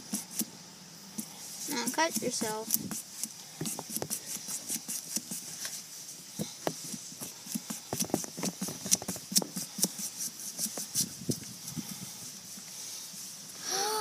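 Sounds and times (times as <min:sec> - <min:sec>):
blade stabbing pumpkin rind: 0:01.7 - 0:05.5.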